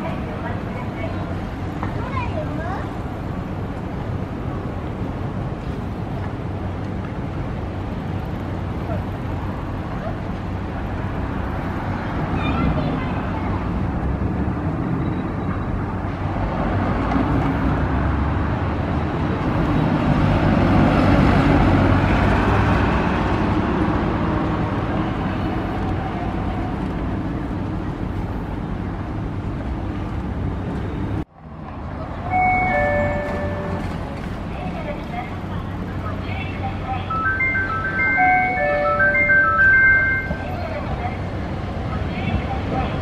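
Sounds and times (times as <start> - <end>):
streetcar motor and wheels on rail: 0.0 - 43.0
two-note falling chime: 37.2 - 40.4.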